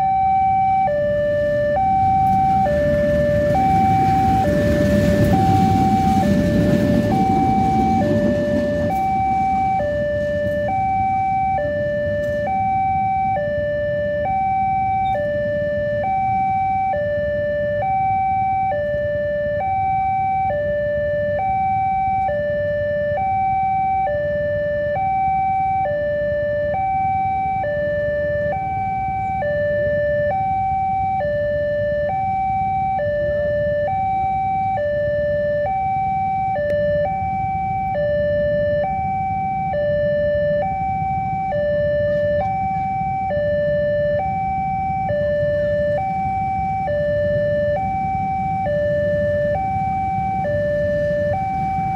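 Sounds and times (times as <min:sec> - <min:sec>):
two-tone crossing alarm: 0:00.0 - 0:51.9
low rumble: 0:01.3 - 0:12.0.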